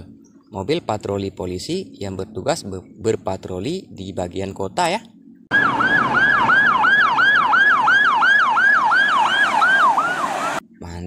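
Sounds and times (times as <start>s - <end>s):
road noise: 5.1s - 10.8s
electronic siren yelping: 5.5s - 10.6s.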